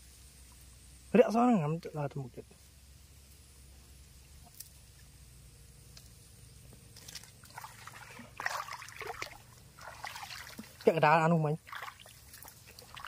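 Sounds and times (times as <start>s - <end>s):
water splashing and trickling: 6.9s - 13.0s.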